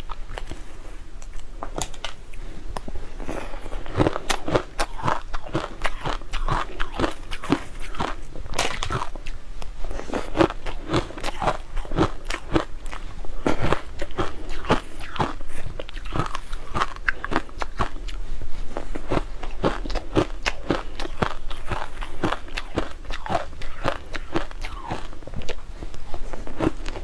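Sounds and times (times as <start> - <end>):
crunching ice chewing: 3.8 - 9.4, 10.0 - 18.2, 19.0 - 25.6.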